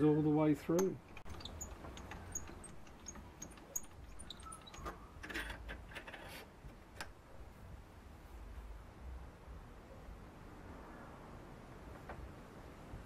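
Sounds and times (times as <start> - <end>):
metal tools clinking: 0.7 - 6.1.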